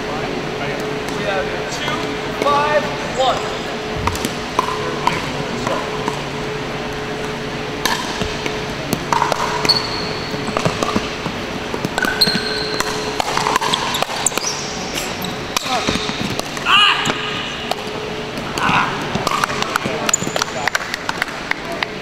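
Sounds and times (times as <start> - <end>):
paddles hitting plastic ball: 7.8 - 22.0
sneakers squeaking on court: 8.2 - 17.7.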